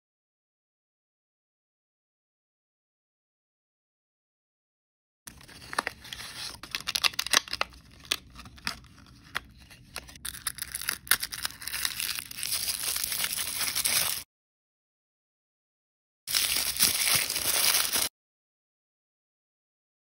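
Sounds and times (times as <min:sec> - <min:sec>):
paper wrapper crinkling: 0:05.3 - 0:14.2, 0:16.3 - 0:18.1
plastic packaging clicking and crackling: 0:05.3 - 0:14.2, 0:16.3 - 0:18.1.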